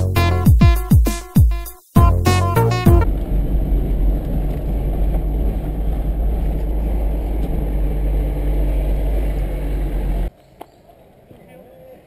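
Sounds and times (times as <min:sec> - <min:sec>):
vehicle engine low rumble: 0:02.4 - 0:10.3.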